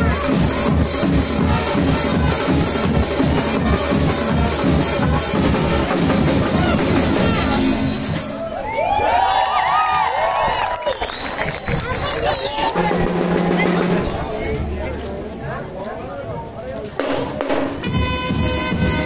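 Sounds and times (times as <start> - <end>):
marching band playing: 0.0 - 8.6, 12.6 - 14.4, 17.0 - 19.0
crowd cheering: 6.2 - 14.2.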